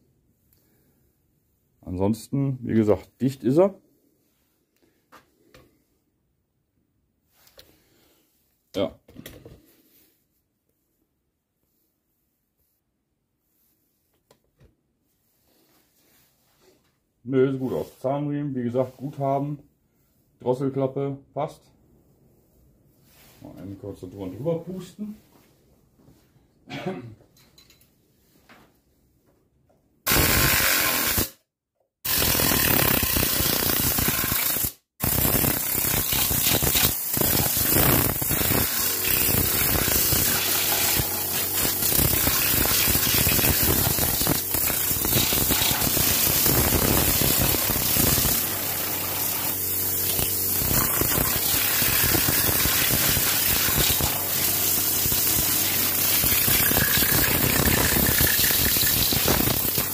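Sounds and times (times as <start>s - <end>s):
air blow gun hissing: 30.1s - 31.4s, 32.1s - 59.9s.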